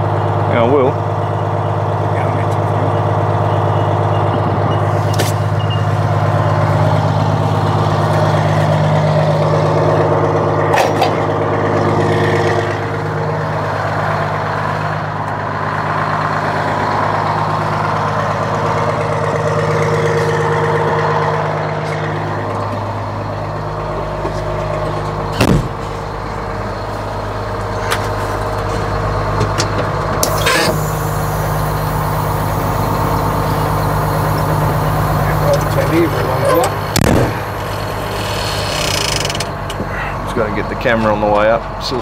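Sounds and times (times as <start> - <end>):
truck engine idling: 0.0 - 42.0.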